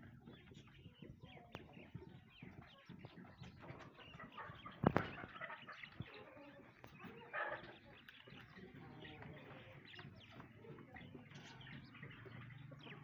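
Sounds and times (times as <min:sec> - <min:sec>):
caged birds chattering and chirping: 0:00.0 - 0:13.0.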